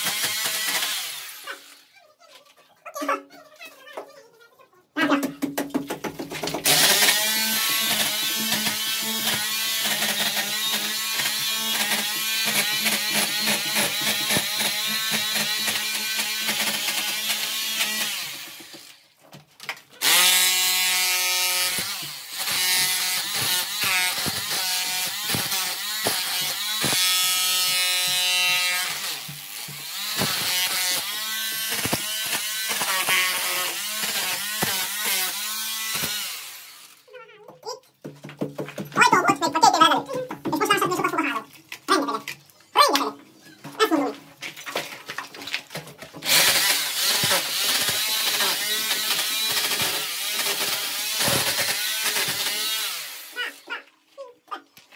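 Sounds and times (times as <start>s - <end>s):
rotary hammer chipping plaster: 0.0s - 1.7s, 5.4s - 19.0s, 20.0s - 36.6s, 43.7s - 53.8s.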